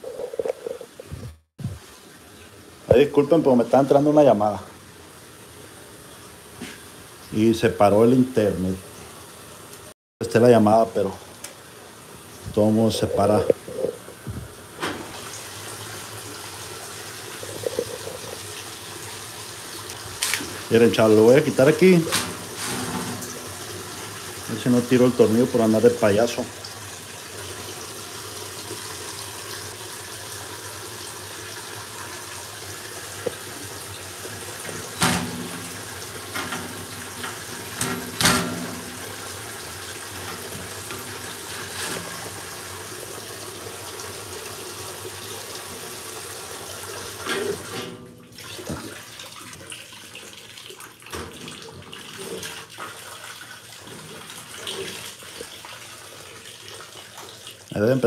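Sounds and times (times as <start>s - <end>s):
water rushing into washing machine: 12.2s - 58.0s.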